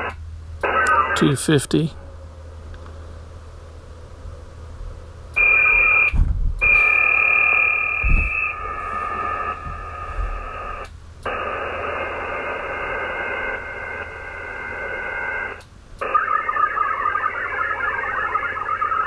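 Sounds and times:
multi-tone modem data signal: 0.0 - 1.5, 5.4 - 19.0.

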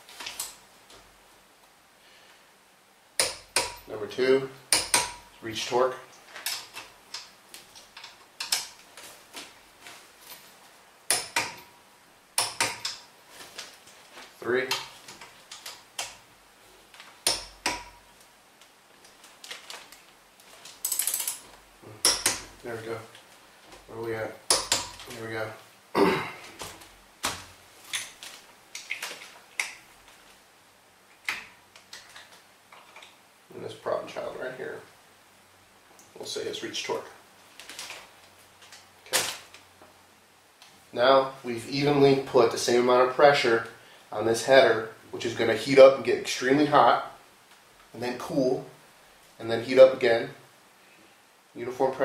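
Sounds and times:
sharp metallic clicks and knocks: 3.2 - 3.9, 4.7 - 5.4, 6.4 - 8.8, 11.1 - 11.7, 12.4 - 13.1, 17.0 - 18.0, 20.8 - 22.6, 24.5 - 25.2.

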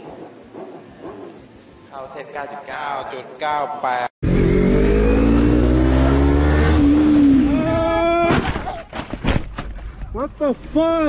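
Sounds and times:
motorcycle engine accelerating: 4.2 - 7.8.

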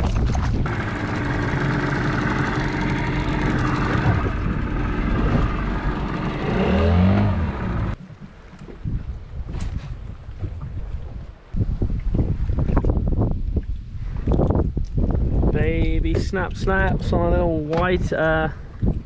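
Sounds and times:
outboard motor running: 0.0 - 8.0
wind: 0.0 - 19.0.

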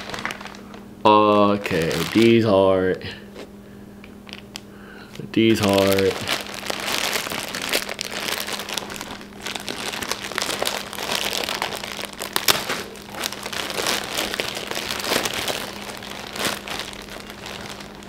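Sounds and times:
plastic bag crinkling: 0.0 - 2.7, 4.2 - 18.0.

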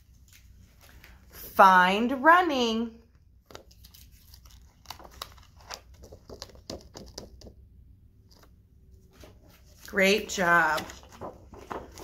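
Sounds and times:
laminated sheet crinkling: 0.0 - 1.4, 3.4 - 7.4, 8.2 - 12.0.

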